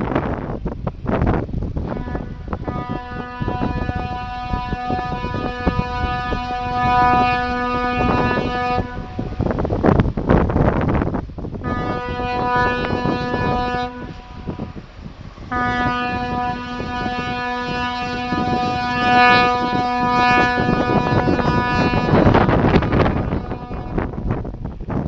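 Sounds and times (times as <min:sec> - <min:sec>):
ship's horn blasts: 0:01.7 - 0:09.9, 0:11.5 - 0:24.9.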